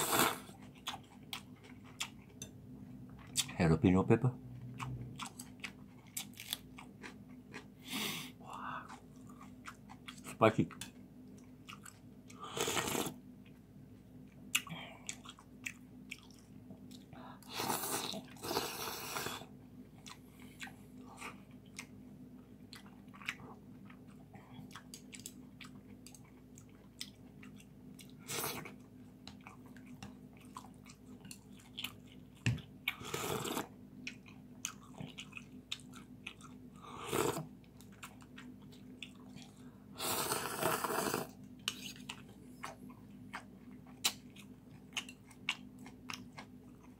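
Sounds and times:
slurping noodle soup: 0:00.0 - 0:00.5, 0:12.4 - 0:13.2, 0:17.4 - 0:19.5, 0:33.0 - 0:33.7, 0:37.0 - 0:37.4, 0:40.0 - 0:42.0
person chewing: 0:00.0 - 0:03.5, 0:04.6 - 0:13.7, 0:14.3 - 0:46.9.

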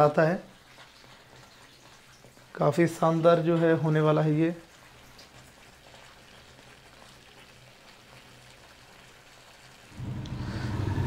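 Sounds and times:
thick sauce bubbling and popping: 0:00.0 - 0:10.3
loud steady low hum: 0:10.0 - 0:11.0.

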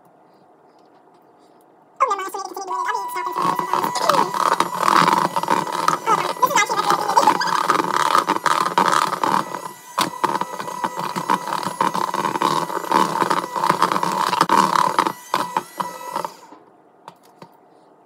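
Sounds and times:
electric hand mixer whining: 0:02.7 - 0:16.6.

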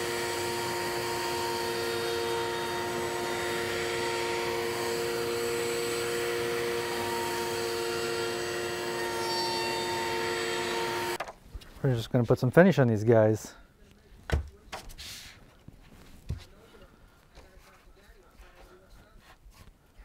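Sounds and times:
router whining while cutting wood: 0:00.0 - 0:11.2.

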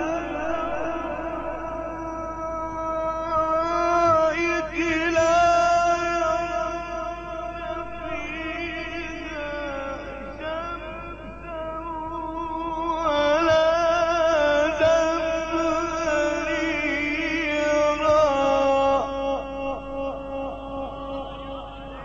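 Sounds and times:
man chanting melodically: 0:00.0 - 0:22.0.

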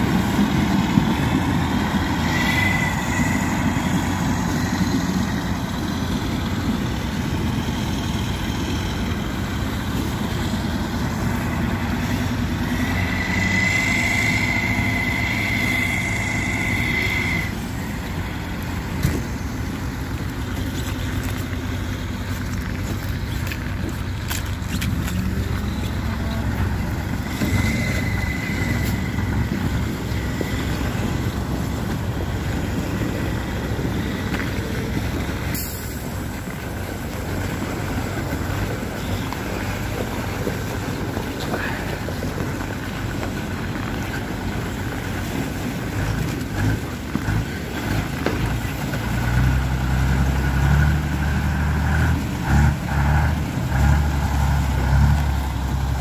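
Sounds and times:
truck engine under load: 0:00.0 - 0:56.0
truck pushing through slush: 0:00.0 - 0:56.0.

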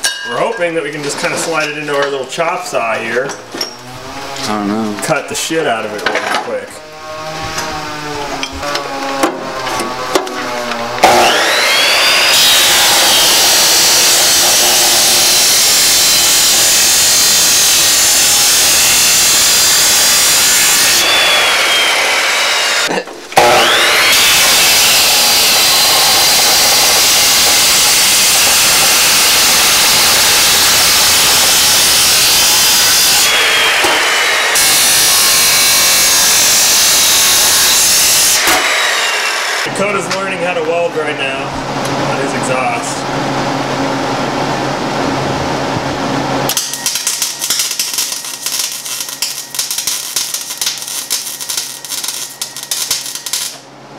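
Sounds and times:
chop saw grinding steel pipe: 0:03.3 - 0:04.6, 0:07.2 - 0:39.7, 0:46.5 - 0:53.6.

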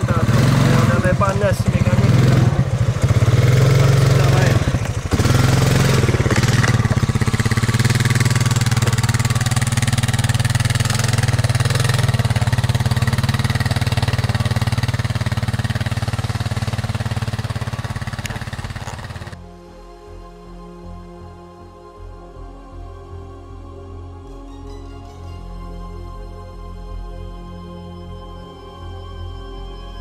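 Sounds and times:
atv engine running: 0:00.0 - 0:19.4.

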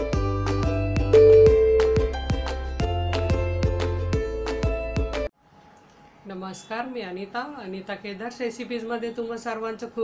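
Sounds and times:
instrumental music with steady beat: 0:00.0 - 0:05.3.

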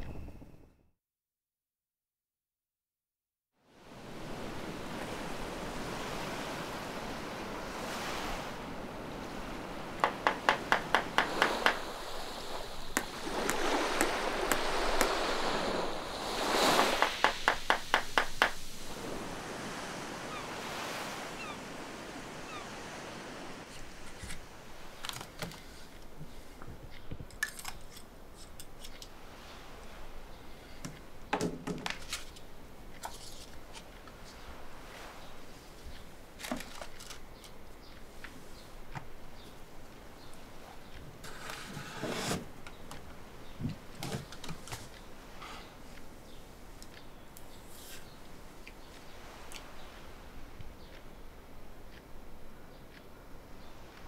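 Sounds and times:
sea surf washing in: 0:03.7 - 0:25.0.

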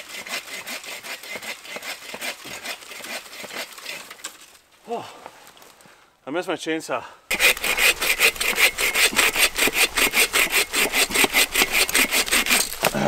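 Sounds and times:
saw cutting dry wood: 0:00.0 - 0:04.1, 0:07.3 - 0:13.0.

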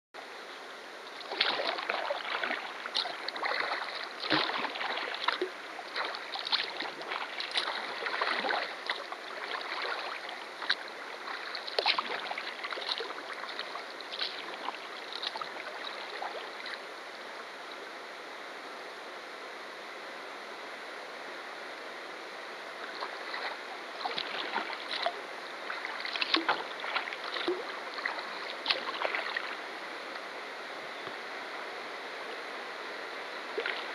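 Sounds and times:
rushing river water: 0:00.2 - 0:33.9
paddle splashing in water: 0:01.1 - 0:16.9, 0:22.7 - 0:30.4, 0:33.5 - 0:33.9.

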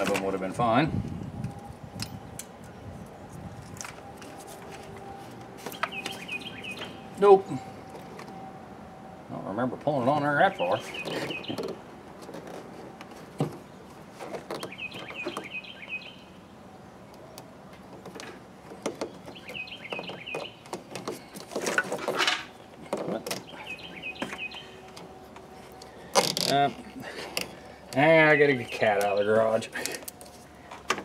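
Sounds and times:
songbird singing: 0:01.4 - 0:11.9, 0:13.0 - 0:31.0
hands clicking and rattling in engine bay: 0:17.1 - 0:31.0.

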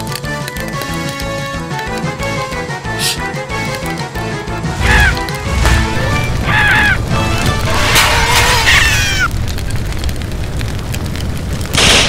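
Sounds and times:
music: 0:00.0 - 0:08.8
cartoon flames roaring: 0:04.6 - 0:12.0
high falling squeals: 0:04.8 - 0:09.8.

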